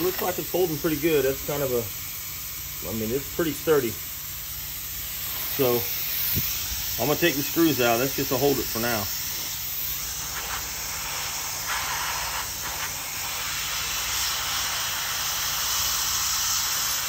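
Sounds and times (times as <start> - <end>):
hot-air gun hissing: 0.0 - 17.0.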